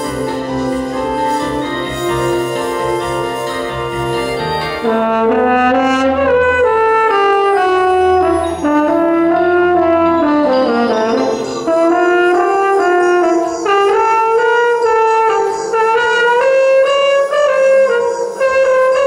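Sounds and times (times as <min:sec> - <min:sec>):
electronic tape accompaniment: 0:00.0 - 0:05.1.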